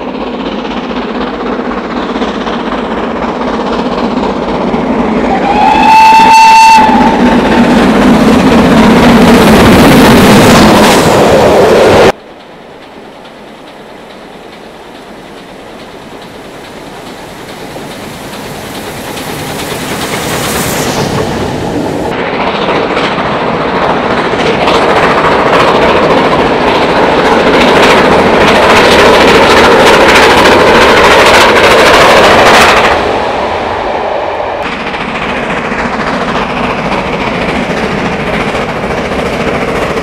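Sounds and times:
steam train approaching: 0:00.0 - 0:40.0
steam whistle: 0:05.3 - 0:07.2.

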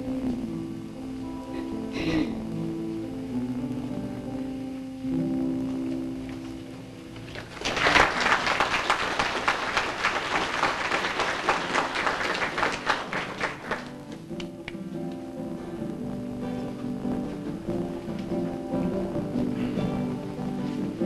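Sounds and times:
audience applause: 0:07.3 - 0:14.2
acoustic guitar ringing notes: 0:13.8 - 0:21.0.

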